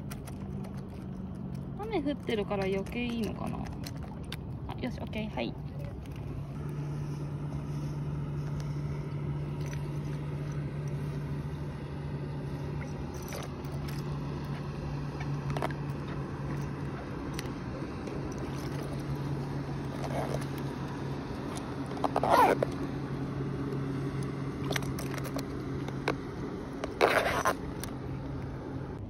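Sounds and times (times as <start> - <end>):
low mechanical hum: 0.0 - 29.0.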